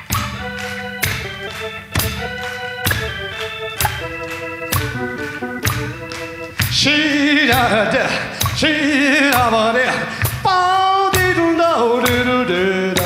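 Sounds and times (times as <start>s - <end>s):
organ accompaniment: 0.0s - 9.7s
man singing with vibrato: 6.7s - 13.0s.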